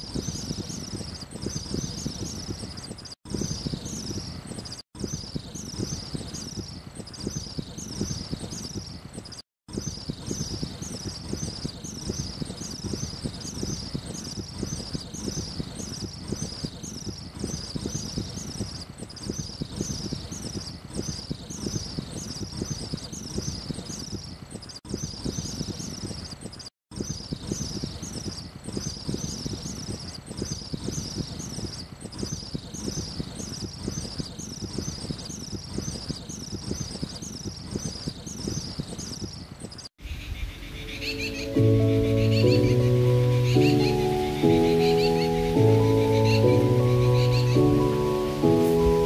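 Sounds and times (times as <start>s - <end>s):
high-pitched chirp: 40.2s - 49.0s.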